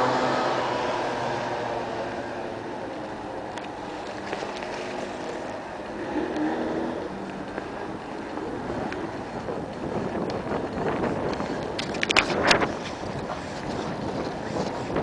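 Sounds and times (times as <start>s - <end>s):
passing vehicle engine: 0.0s - 9.3s
traffic hum: 0.0s - 15.0s.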